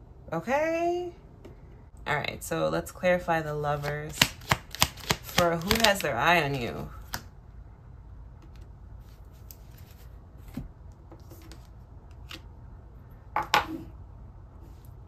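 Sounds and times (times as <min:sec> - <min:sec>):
cards shuffling and clicking: 0:03.8 - 0:06.2.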